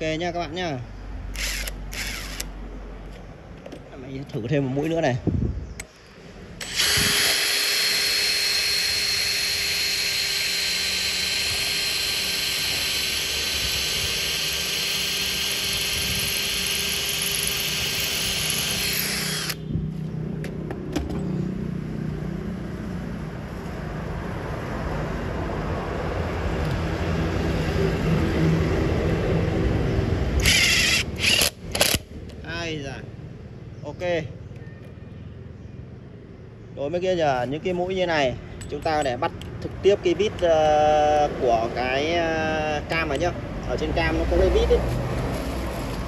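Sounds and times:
power drill boring into masonry: 0:01.3 - 0:02.5, 0:06.6 - 0:19.6, 0:30.4 - 0:32.0.

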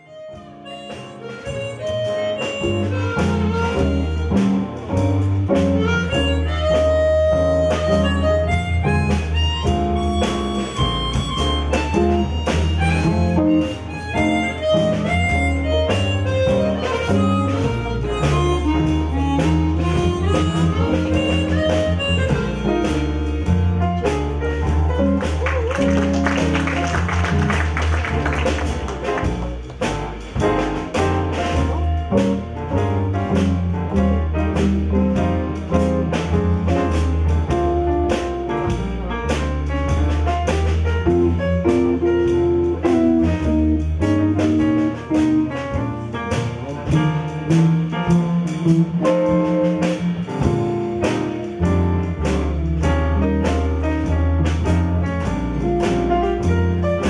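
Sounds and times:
harmonica: 0:00.0 - 0:04.6, 0:05.8 - 0:23.2
double bass: 0:00.0 - 0:57.0
drums: 0:00.0 - 0:57.0
piano: 0:00.0 - 0:57.0.

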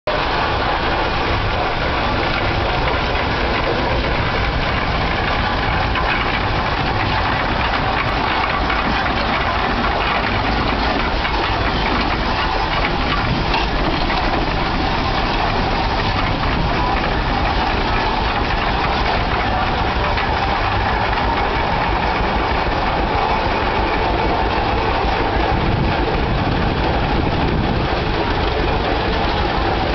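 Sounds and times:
mechanical clatter of wheels on gravel: 0:00.1 - 0:29.9
steam exhaust: 0:00.1 - 0:29.9.

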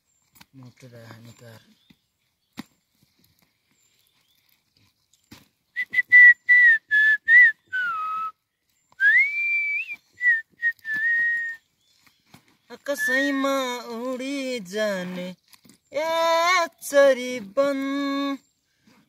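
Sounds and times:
person whistling a tune: 0:05.8 - 0:08.4, 0:09.0 - 0:11.6, 0:13.0 - 0:13.4.

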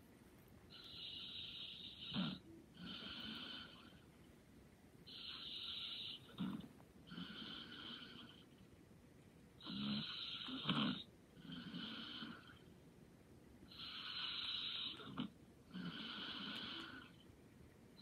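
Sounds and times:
person snoring lightly: 0:09.6 - 0:12.6.

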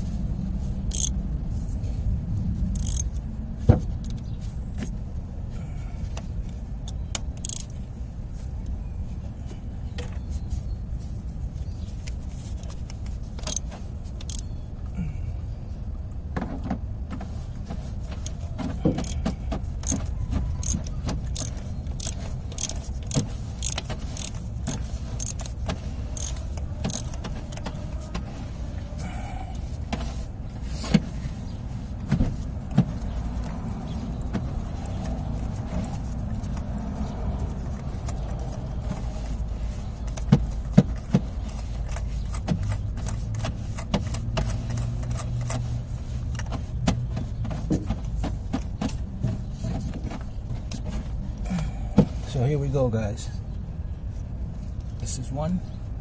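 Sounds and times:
steady low rumble: 0:00.0 - 0:10.0
hand ratchet clicking: 0:00.9 - 0:01.1, 0:02.8 - 0:03.2, 0:07.1 - 0:07.7, 0:13.4 - 0:14.4, 0:19.8 - 0:25.6, 0:26.2 - 0:27.2.

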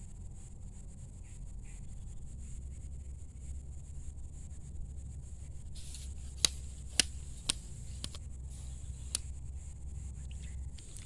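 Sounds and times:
low rumble: 0:00.0 - 0:06.3
fishing pole sections clicking: 0:05.8 - 0:09.3, 0:10.3 - 0:11.0.

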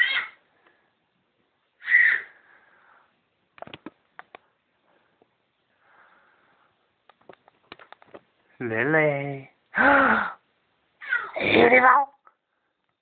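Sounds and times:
baby squealing: 0:00.0 - 0:00.4, 0:01.8 - 0:02.3, 0:11.0 - 0:11.4.

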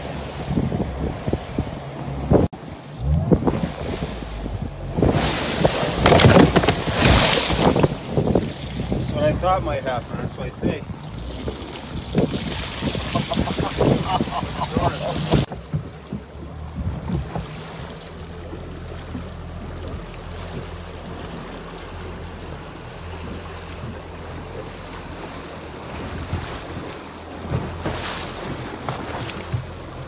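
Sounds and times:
boat through choppy water: 0:00.0 - 0:30.0
outboard motor running: 0:00.0 - 0:30.0
wind buffeting microphone: 0:00.1 - 0:18.0.

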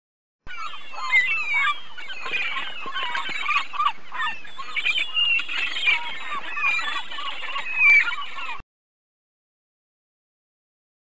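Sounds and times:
gulls calling: 0:00.5 - 0:08.6.

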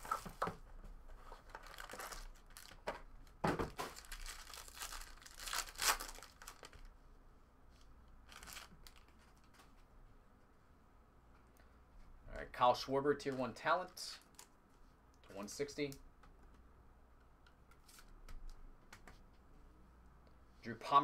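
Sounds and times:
foil wrapper tearing and crinkling: 0:01.6 - 0:02.8, 0:03.9 - 0:06.8.

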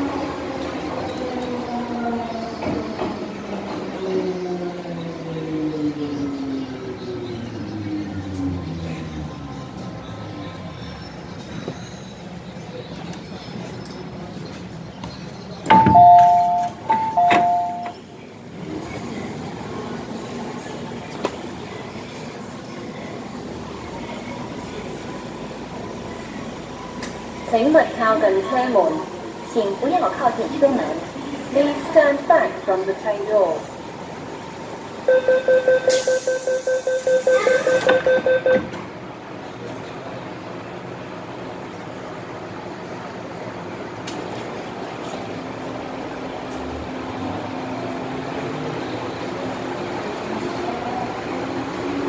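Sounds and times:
train rumble: 0:00.0 - 0:52.0
train doors sliding shut: 0:14.5 - 0:19.2, 0:35.8 - 0:39.0
two-note door chime: 0:15.7 - 0:18.0
rapid warning beeping: 0:35.1 - 0:38.6.

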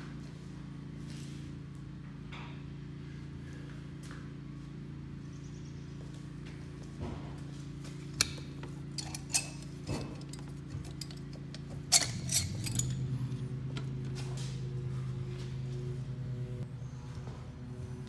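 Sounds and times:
steady low hum: 0:00.0 - 0:18.0
metal clinks and knocks: 0:08.6 - 0:13.5.

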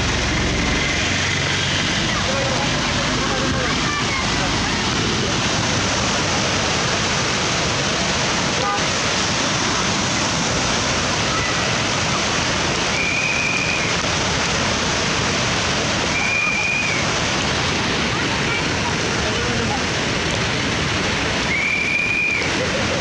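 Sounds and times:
rain falling: 0:00.0 - 0:23.0
rushing floodwater: 0:00.0 - 0:23.0.

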